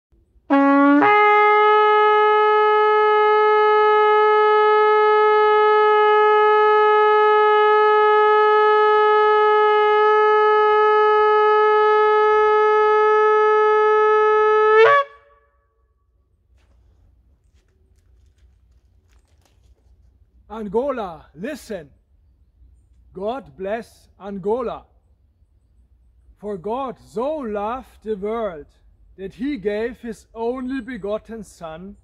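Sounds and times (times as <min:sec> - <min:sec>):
shofar horn blast: 0:00.5 - 0:15.9.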